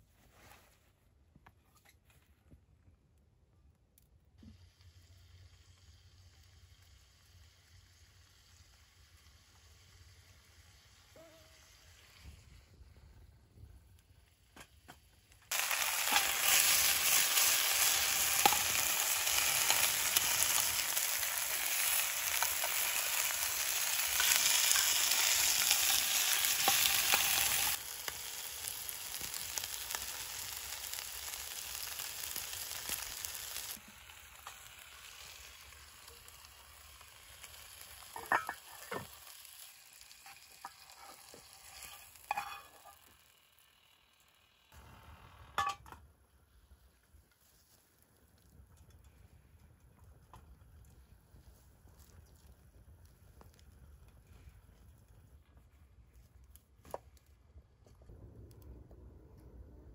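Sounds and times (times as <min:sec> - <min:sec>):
patties sizzling in a pan: 0:04.5 - 0:12.9, 0:15.5 - 0:44.8.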